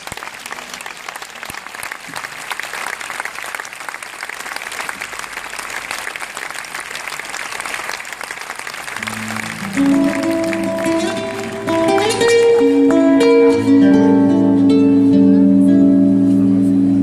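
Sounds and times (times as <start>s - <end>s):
crowd applauding: 0.0s - 13.7s
band instrument notes: 9.0s - 17.0s.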